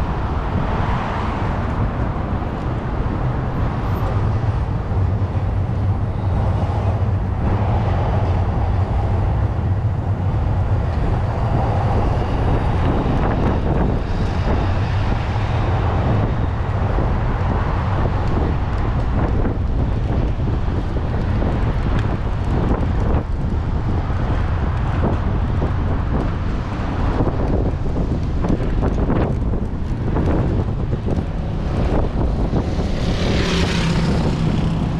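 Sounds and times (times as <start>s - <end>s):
road traffic passing: 0.0s - 34.9s
wind rumbling on microphone: 0.0s - 34.9s.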